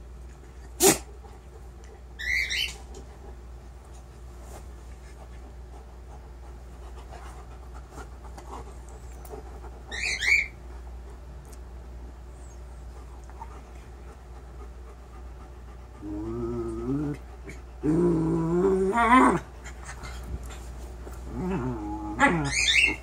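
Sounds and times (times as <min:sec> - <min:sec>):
pet bird squawking: 0:02.2 - 0:02.8, 0:09.9 - 0:10.6, 0:22.4 - 0:23.0.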